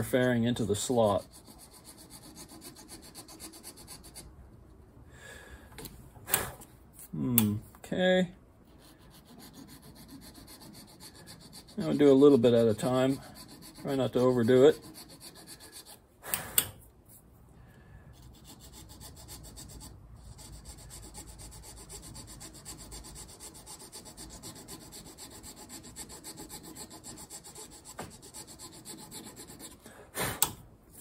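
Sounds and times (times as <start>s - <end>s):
needle file scraping: 0.6s - 4.3s, 8.6s - 16.4s, 18.2s - 29.8s.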